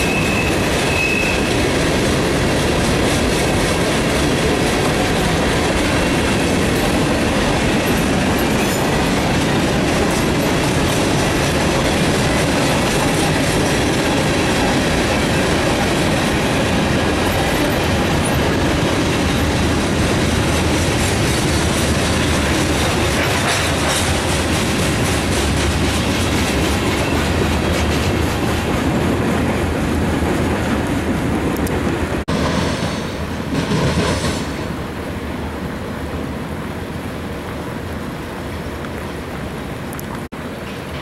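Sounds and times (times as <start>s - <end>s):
wheels rumbling on rail: 0.0s - 41.0s
wheels clicking over rail joints: 0.6s - 32.0s.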